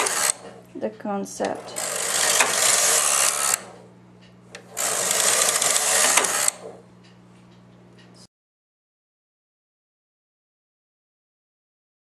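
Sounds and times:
knitting machine carriage clattering: 0:00.0 - 0:00.6, 0:01.6 - 0:03.7, 0:04.7 - 0:06.8
steady low hum: 0:00.0 - 0:08.3.

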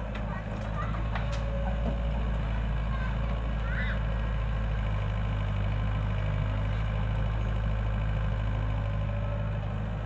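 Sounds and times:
diesel engines droning: 0:00.0 - 0:10.0.

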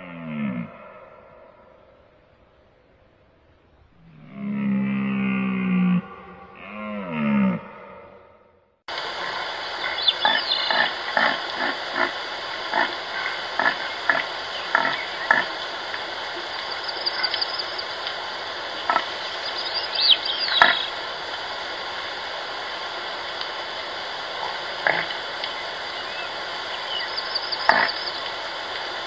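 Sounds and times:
steady high hum: 0:08.9 - 0:29.0
bird chirps: 0:09.8 - 0:10.9, 0:13.2 - 0:15.4, 0:16.4 - 0:17.9, 0:18.8 - 0:20.9, 0:25.4 - 0:28.3.

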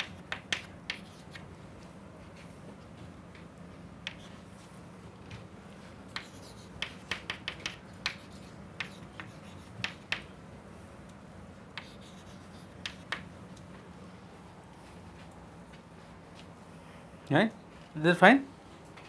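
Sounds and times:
chalk tapping on chalkboard: 0:00.0 - 0:01.4, 0:04.0 - 0:04.4, 0:06.1 - 0:10.3, 0:11.8 - 0:13.3
low room hum: 0:00.0 - 0:19.0.

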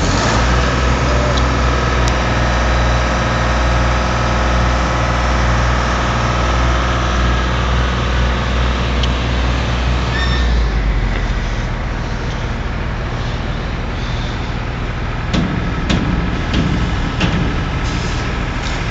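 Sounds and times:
diesel engine humming: 0:00.0 - 0:18.9.

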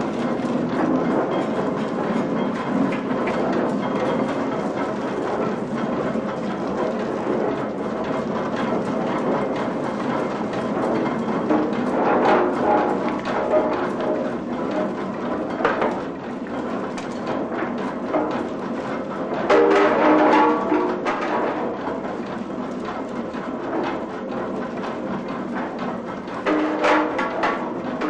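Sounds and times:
mill machinery running: 0:00.0 - 0:28.0
wooden and metal knocking: 0:19.4 - 0:21.8, 0:26.4 - 0:28.0.

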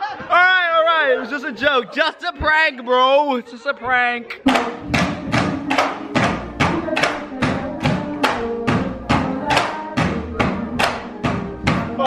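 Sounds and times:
melodic music: 0:04.4 - 0:12.0
bamboo poles clacking: 0:04.5 - 0:11.1.

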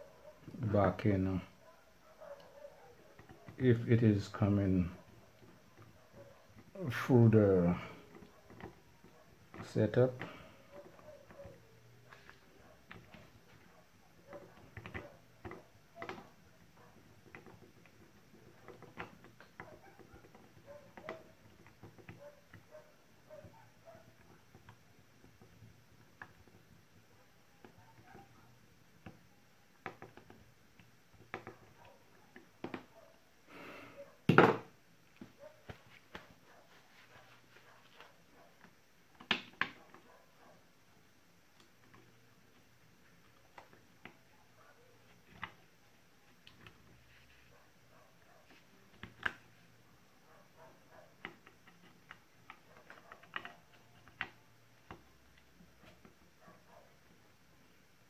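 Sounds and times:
faint plastic clicks and taps: 0:07.8 - 0:33.1, 0:50.5 - 0:57.2.

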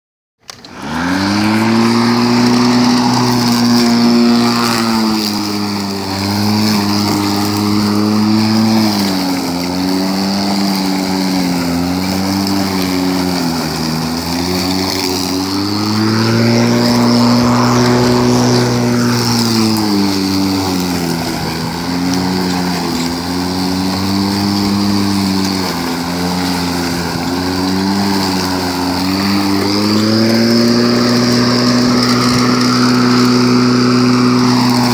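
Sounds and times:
electric lawnmower running: 0:00.4 - 0:34.9.

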